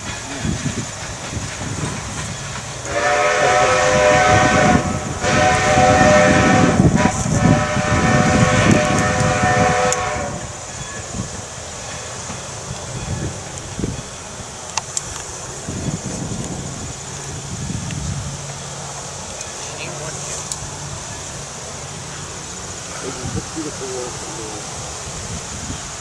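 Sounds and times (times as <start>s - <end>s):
train rumbling on rails: 0.0s - 26.0s
steam whistle blasts: 2.8s - 11.1s.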